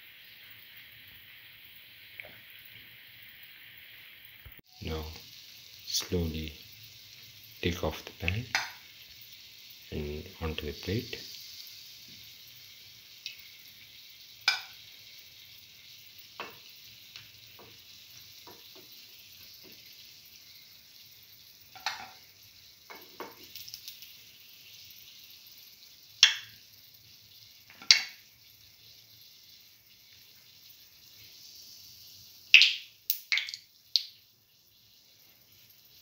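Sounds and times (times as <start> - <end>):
hot oil sizzling: 0.0 - 36.0
spoon tapping against pan: 8.5 - 8.8, 14.4 - 14.8, 21.8 - 22.2, 26.2 - 26.6, 27.7 - 28.2.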